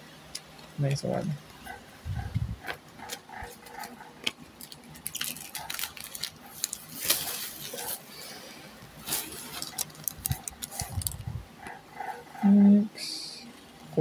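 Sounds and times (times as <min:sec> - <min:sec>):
trading cards rustling: 0:02.6 - 0:08.1, 0:09.0 - 0:11.8
foil wrapper crinkling: 0:02.7 - 0:08.1, 0:09.0 - 0:11.3.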